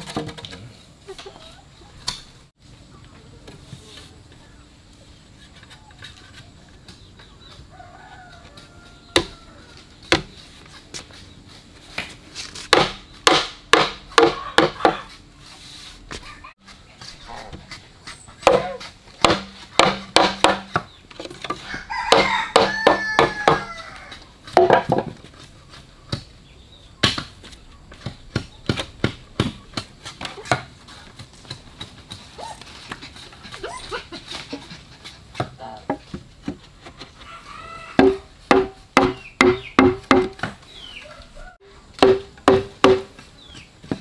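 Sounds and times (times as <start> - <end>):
chickens calling: 0.7 - 3.5, 4.4 - 11.7, 14.2 - 15.4, 20.7 - 31.2, 31.8 - 42.0
knife chopping on wooden board: 12.7 - 15.0, 18.4 - 20.8, 38.0 - 40.5, 42.0 - 43.1.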